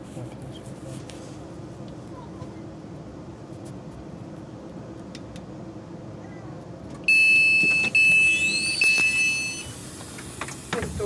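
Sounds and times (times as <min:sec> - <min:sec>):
door warning beep: 0:07.0 - 0:09.8.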